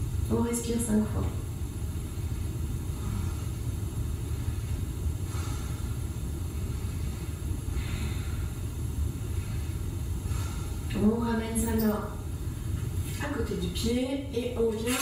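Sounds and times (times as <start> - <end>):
steady low rumble: 0.0 - 15.0
soft breaths: 1.7 - 11.0.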